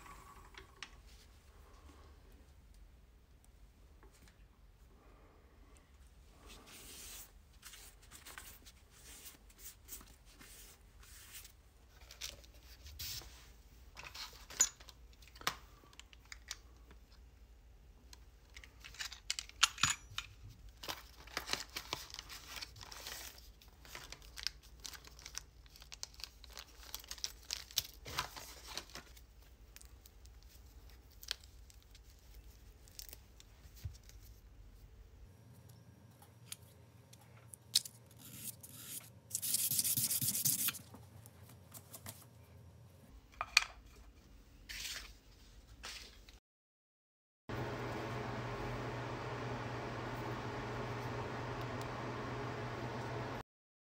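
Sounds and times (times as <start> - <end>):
packaging crinkling and tearing: 20.8 - 34.2.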